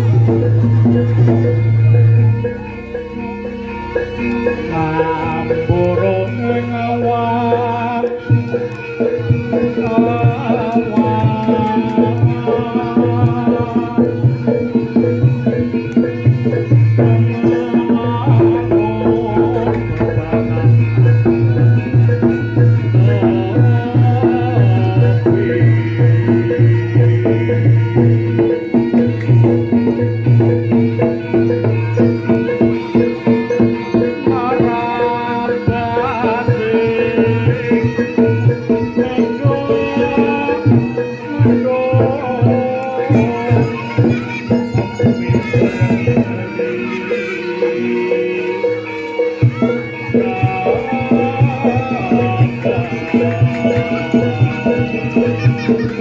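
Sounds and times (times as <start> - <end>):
metal percussion notes: 0.0 - 56.0
ringing gongs and metallophones: 0.0 - 56.0
wavering melody line: 0.0 - 56.0
hand drums beating: 4.0 - 56.0.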